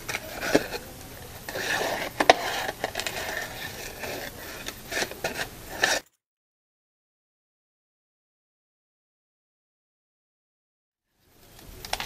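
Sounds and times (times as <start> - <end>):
paper rustling: 0.0 - 6.1
scissors cutting paper: 0.0 - 6.2.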